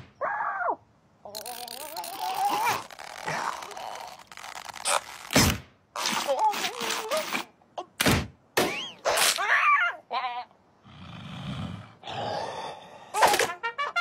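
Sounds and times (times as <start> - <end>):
cartoon groaning vocals: 1.3 - 4.4.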